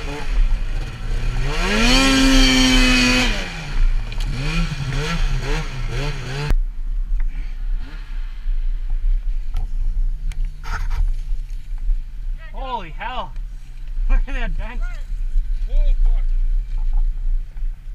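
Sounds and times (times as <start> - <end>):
snowmobile engine revving: 0.0 - 6.5.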